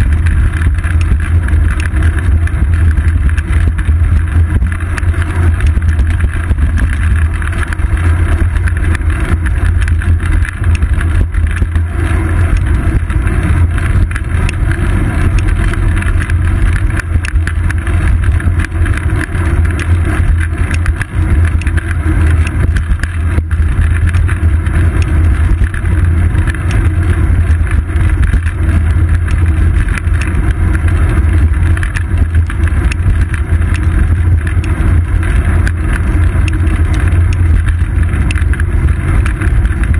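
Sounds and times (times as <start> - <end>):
bicycle road noise on asphalt: 0.0 - 39.9
wind rumble: 0.0 - 39.9.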